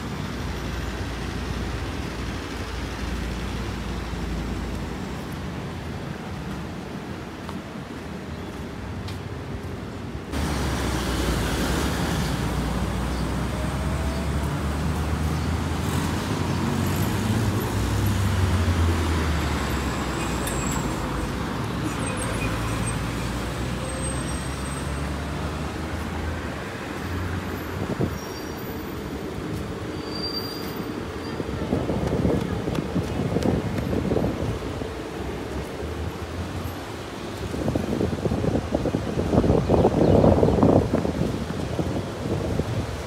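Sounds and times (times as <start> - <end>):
passing cars rumbling: 10.3 - 43.0.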